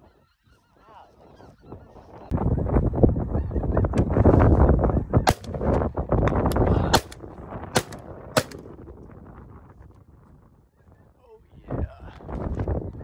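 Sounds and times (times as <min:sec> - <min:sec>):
shotgun shots: 0:05.3 - 0:05.6, 0:06.9 - 0:07.2, 0:07.8 - 0:08.6.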